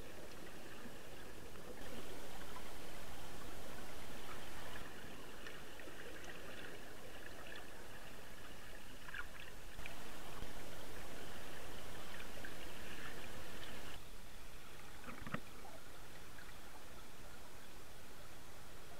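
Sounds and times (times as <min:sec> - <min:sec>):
faint underwater clicks: 0:00.0 - 0:14.0, 0:14.8 - 0:15.8
underwater river rushing: 0:00.0 - 0:14.0.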